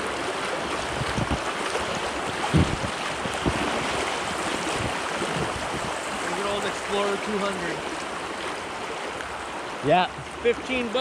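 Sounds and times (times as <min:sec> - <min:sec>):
river water rushing: 0:00.0 - 0:11.0
dull low thumps: 0:02.4 - 0:03.7.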